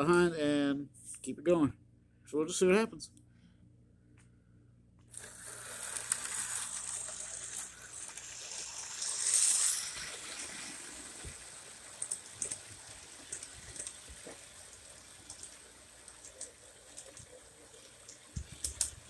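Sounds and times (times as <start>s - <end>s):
model train wheels clicking on rails: 5.1s - 19.0s.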